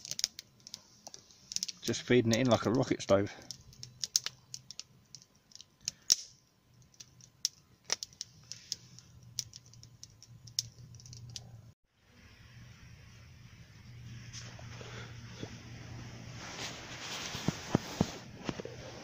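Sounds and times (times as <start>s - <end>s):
wood fire crackling: 0.0s - 11.8s.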